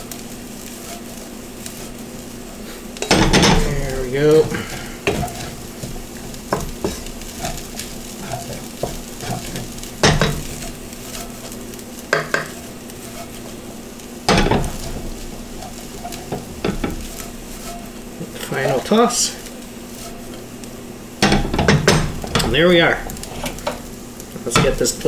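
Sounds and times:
wooden spatula scraping a pan: 0:00.0 - 0:20.6, 0:21.3 - 0:25.0
rice sizzling in a pan: 0:00.0 - 0:25.0
pan clattering: 0:03.0 - 0:11.5, 0:14.3 - 0:17.8, 0:21.2 - 0:23.9.

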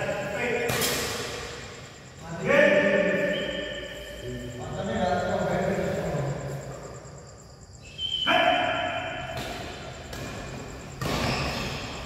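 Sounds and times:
shoes squeaking on court floor: 0:10.0 - 0:12.0.

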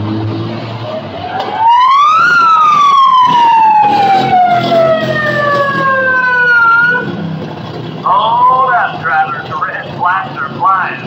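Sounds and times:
siren winding up and down: 0:01.1 - 0:07.2.

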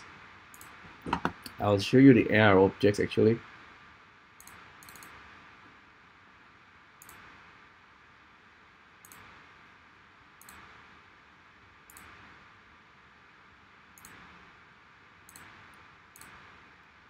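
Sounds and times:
computer mouse clicks: 0:00.5 - 0:01.6, 0:04.4 - 0:05.2, 0:07.0 - 0:07.3, 0:09.0 - 0:09.3, 0:10.4 - 0:10.7, 0:11.9 - 0:12.2, 0:14.0 - 0:14.3, 0:15.3 - 0:16.5.

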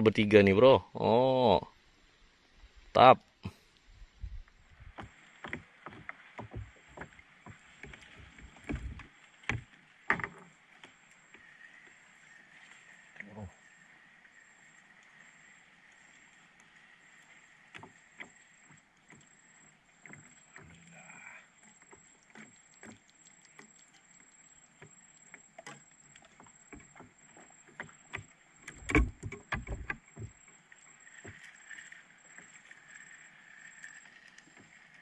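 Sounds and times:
thumps against wooden hull: 0:04.8 - 0:10.5, 0:27.7 - 0:30.4.

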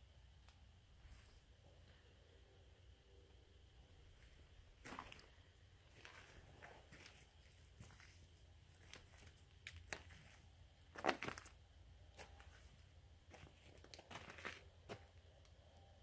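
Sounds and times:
footsteps crunching on gravel: 0:04.8 - 0:05.3, 0:05.9 - 0:11.6, 0:13.3 - 0:15.0.

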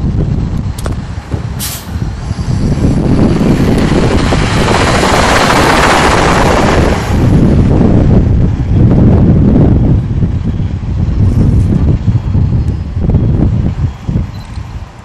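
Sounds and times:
bus diesel engine running: 0:00.0 - 0:15.0
air brake hiss: 0:01.6 - 0:02.0.

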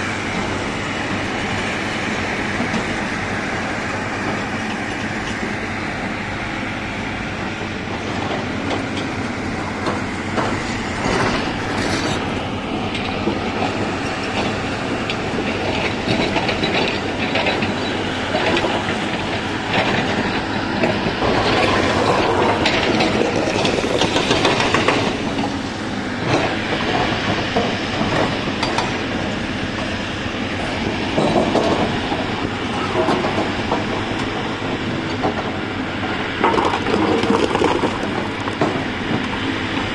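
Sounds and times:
excavator diesel engine under load: 0:00.0 - 0:39.9
rocks clattering and scraping: 0:36.4 - 0:38.6.

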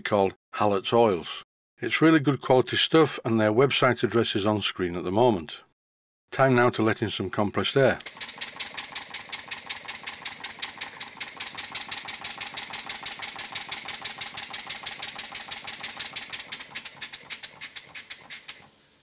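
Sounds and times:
steam engine chuffing: 0:08.0 - 0:18.7.

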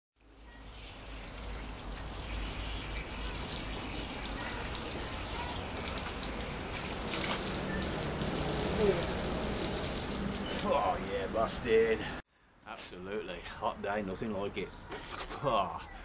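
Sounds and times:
water splashing from a hose: 0:00.2 - 0:11.1
water spattering into plastic bucket: 0:01.4 - 0:10.8.

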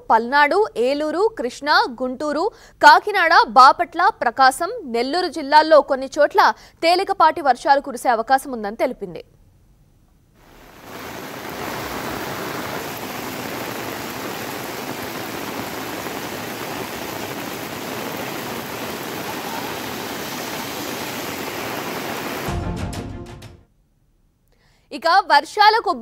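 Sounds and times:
storm water rushing: 0:10.4 - 0:22.7.

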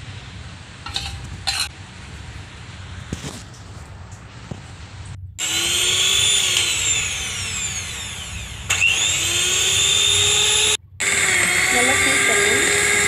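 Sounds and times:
electric hand mixer whining: 0:05.4 - 0:13.0.

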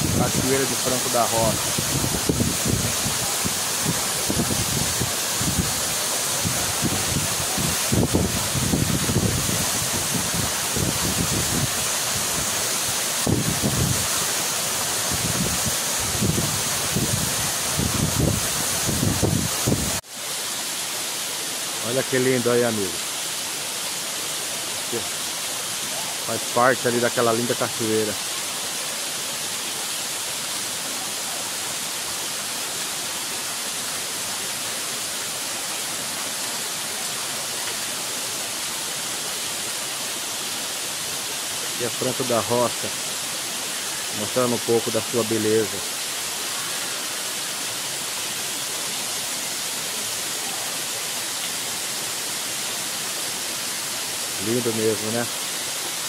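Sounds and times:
waterfall pouring onto rocks: 0:00.0 - 0:56.0
wind buffeting microphone: 0:15.1 - 0:20.0.

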